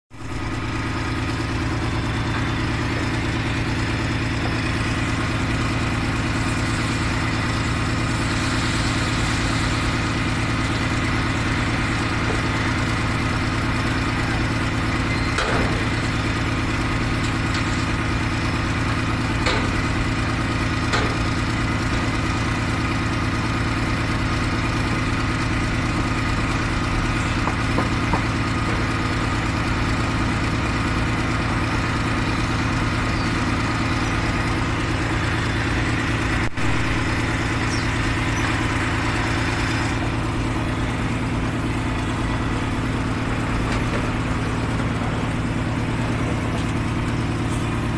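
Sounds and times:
diesel truck engine idling: 0:00.1 - 0:47.9.

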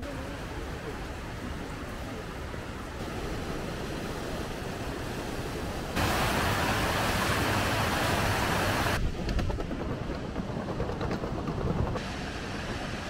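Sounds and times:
waterfall rushing: 0:00.0 - 0:09.0.

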